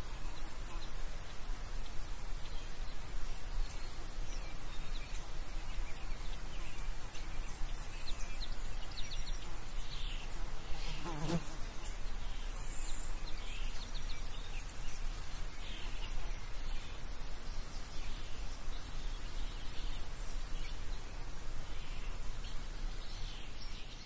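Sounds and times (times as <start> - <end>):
flying insect buzzing: 10.4 - 11.8.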